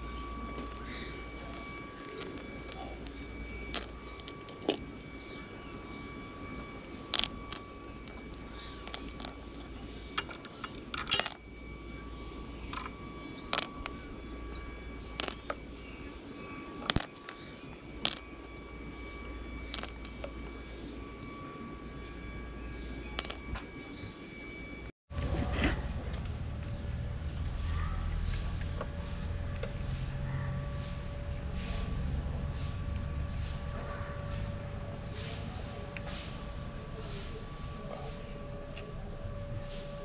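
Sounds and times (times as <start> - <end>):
faint steady hum: 0.0 - 24.9.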